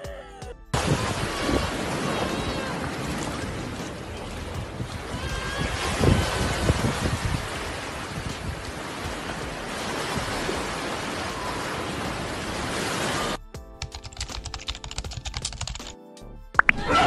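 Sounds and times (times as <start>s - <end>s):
surf breaking on a beach: 0.8s - 13.4s
computer keyboard typing: 13.7s - 16.0s.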